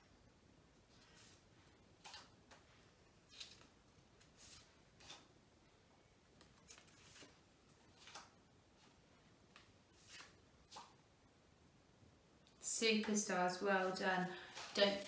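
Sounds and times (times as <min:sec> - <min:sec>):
flashcards rustling: 0:06.4 - 0:10.9, 0:13.8 - 0:15.0.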